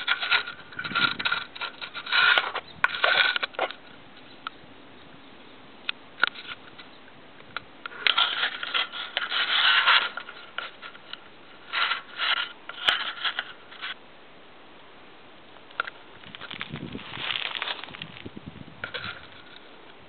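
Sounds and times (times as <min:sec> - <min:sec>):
rubbing against microphone: 0:00.0 - 0:03.8, 0:07.9 - 0:14.0.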